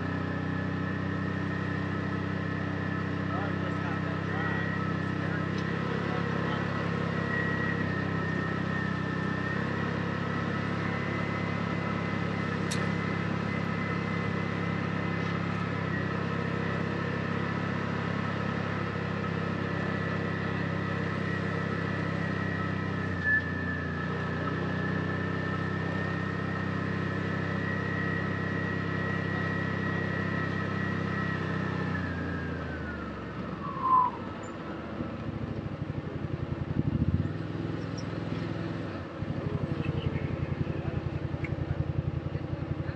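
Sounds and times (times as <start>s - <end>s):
utv engine running: 0.0s - 42.9s
high whine: 33.4s - 35.2s.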